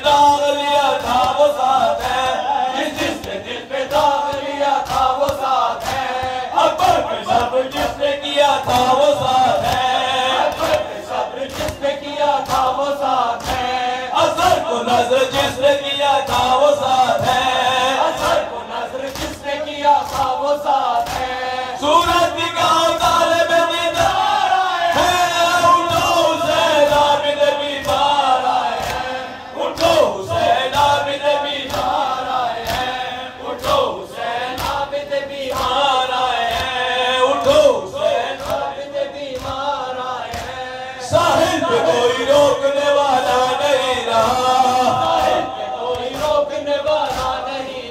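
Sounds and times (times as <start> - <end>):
men chanting: 0.0 - 47.9
hands slapping chests: 0.8 - 14.6, 17.2 - 23.3, 25.9 - 37.7, 38.3 - 40.7, 44.7 - 47.8.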